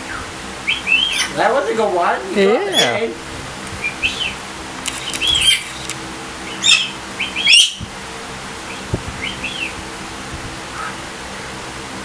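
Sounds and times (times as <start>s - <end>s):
cockatoos screeching: 0.0s - 1.6s, 2.4s - 3.2s, 3.8s - 7.8s.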